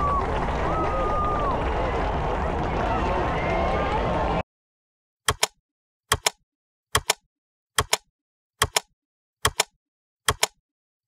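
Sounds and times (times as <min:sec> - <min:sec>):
sharp double clicks ticking: 0:06.1 - 0:06.4, 0:07.0 - 0:07.2, 0:07.8 - 0:08.0, 0:08.6 - 0:09.7.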